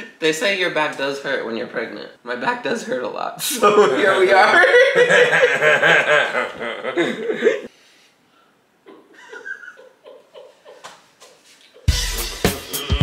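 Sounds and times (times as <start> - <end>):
man laughing heartily: 3.6 - 7.7, 8.9 - 13.0.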